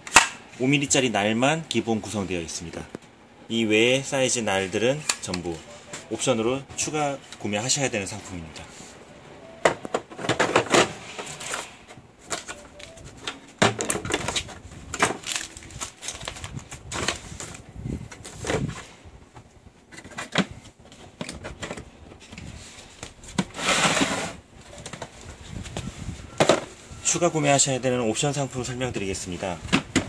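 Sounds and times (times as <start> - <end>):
clicks and knocks of plastic case: 13.3 - 18.8
case scraping across wooden table: 23.4 - 24.4.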